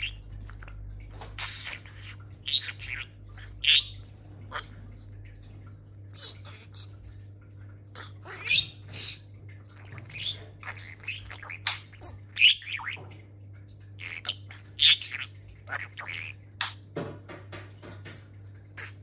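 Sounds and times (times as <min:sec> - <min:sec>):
budgerigar chirps and squawks: 0:00.0 - 0:00.3, 0:01.4 - 0:04.8, 0:08.0 - 0:13.0, 0:14.0 - 0:16.8.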